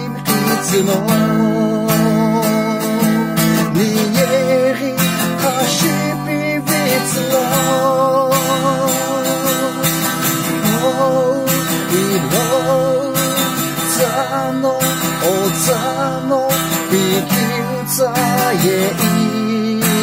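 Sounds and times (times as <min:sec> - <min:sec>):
man singing: 0:00.0 - 0:20.0
strummed acoustic guitar: 0:00.0 - 0:20.0.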